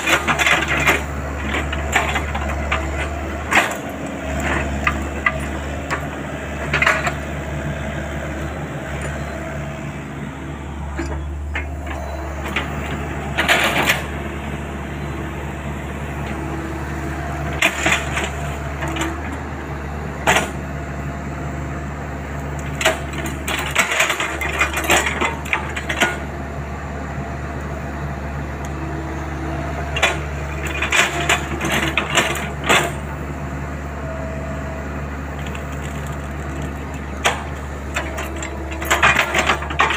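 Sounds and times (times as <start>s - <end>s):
excavator diesel engine running: 0.0s - 39.9s.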